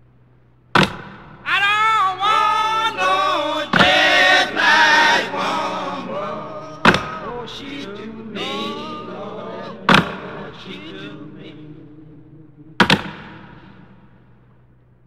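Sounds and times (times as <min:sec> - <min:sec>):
sharp crack: 0:00.8 - 0:01.5, 0:06.8 - 0:07.4, 0:12.8 - 0:14.1
man singing a song: 0:01.5 - 0:12.8.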